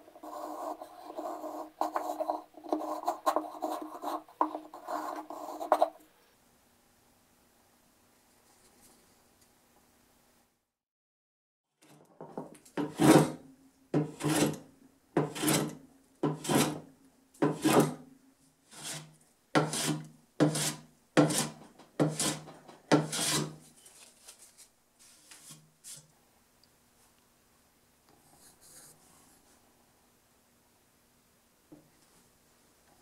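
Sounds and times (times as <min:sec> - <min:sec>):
hand plane shaving wood: 0:00.0 - 0:06.0, 0:12.8 - 0:13.4, 0:14.0 - 0:16.8, 0:17.4 - 0:17.9, 0:18.8 - 0:23.6.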